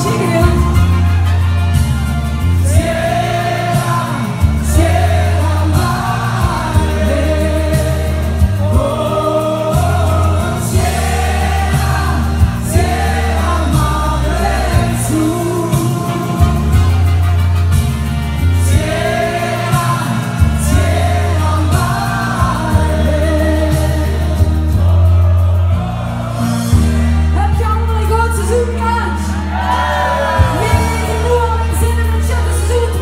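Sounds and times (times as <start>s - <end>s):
woman singing into microphone: 0.0s - 0.9s
pop backing music with heavy bass: 0.0s - 33.0s.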